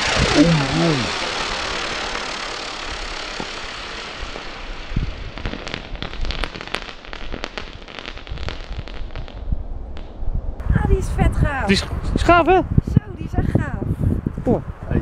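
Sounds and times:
firework rocket hissing: 0.0 - 10.1
firework crackling pops: 1.0 - 10.2.

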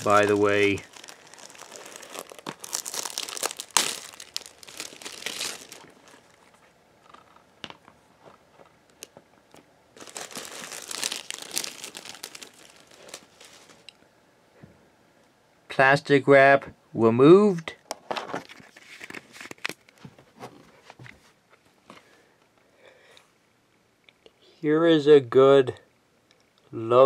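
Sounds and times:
plastic wrap crinkling and tearing: 0.0 - 6.6, 10.0 - 13.9.

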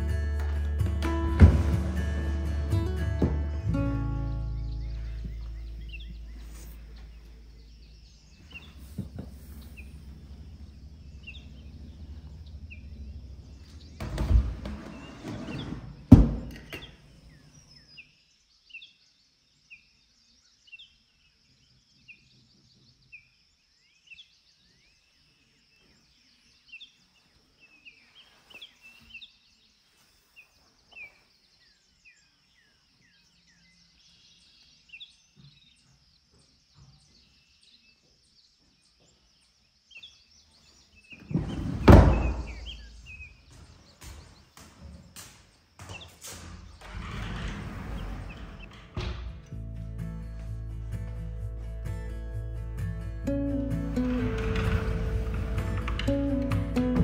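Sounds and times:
wooden drawer knock: 1.3 - 2.0
drawer sliding thud: 1.4 - 2.0
small birds chirping: 2.8 - 49.6.

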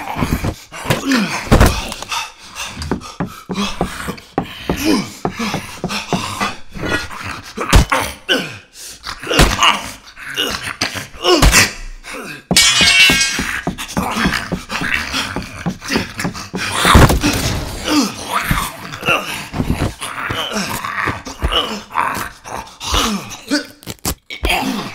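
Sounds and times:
heavy thuds and blows: 12.5 - 18.7.

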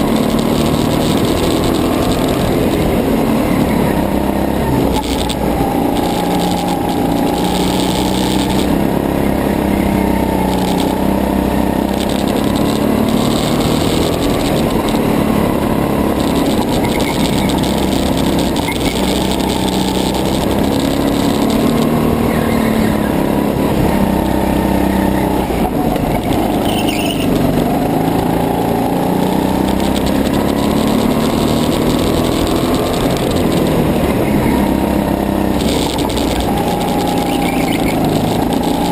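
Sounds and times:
go-kart engine revving: 0.0 - 38.9.

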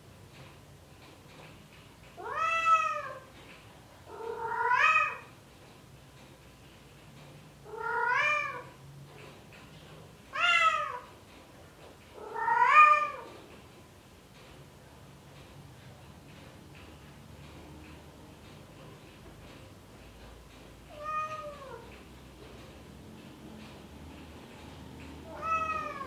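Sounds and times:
cat yowling: 21.0 - 21.8, 25.3 - 26.0.

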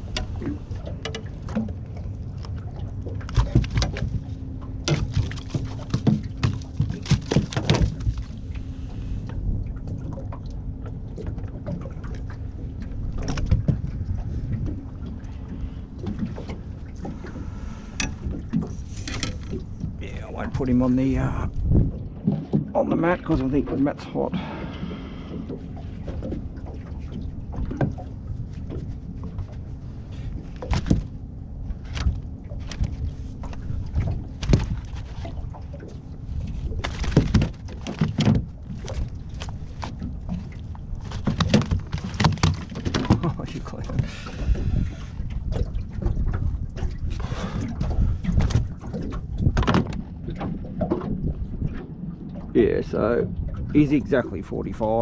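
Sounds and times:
low steady rumble: 0.0 - 55.0
water lapping against boat hull: 0.0 - 55.0
fishing gear clicking and knocking: 3.2 - 4.2, 4.8 - 8.3, 17.9 - 20.0, 36.8 - 43.4, 48.3 - 50.1
wind on microphone: 17.4 - 22.6, 42.9 - 55.0.

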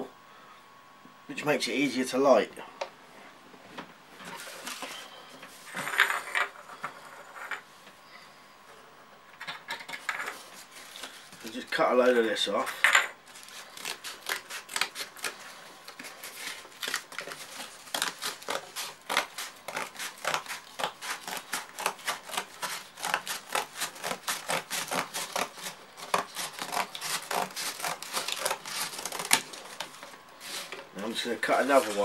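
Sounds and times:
scissors cutting cardboard: 13.3 - 30.8.

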